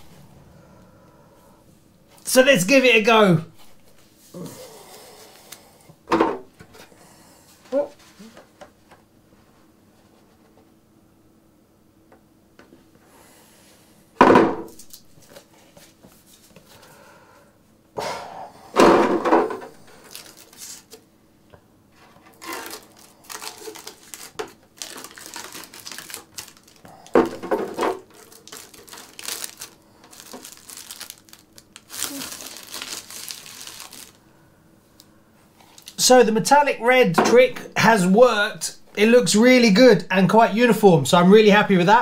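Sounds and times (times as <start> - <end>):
protective film crinkling: 19.8 - 21.0, 22.0 - 34.2.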